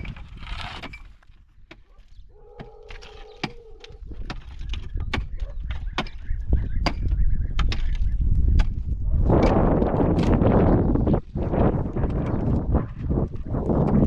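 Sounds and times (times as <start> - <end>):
sharp knocks or clicks: 2.6 - 6.2.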